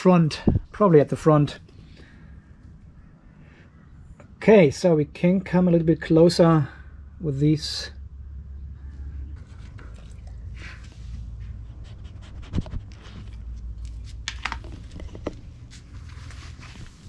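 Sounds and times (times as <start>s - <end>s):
dog panting and sniffing: 9.3s - 13.6s.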